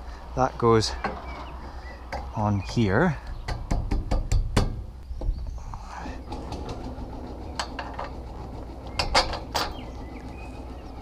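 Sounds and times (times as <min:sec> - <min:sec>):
sharp metal knocks: 0:02.1 - 0:05.4, 0:09.0 - 0:09.9.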